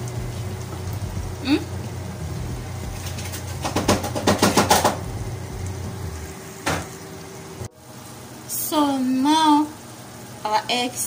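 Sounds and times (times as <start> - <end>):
low steady hum: 0.0 - 11.0
stew simmering in frying pan: 0.0 - 11.0.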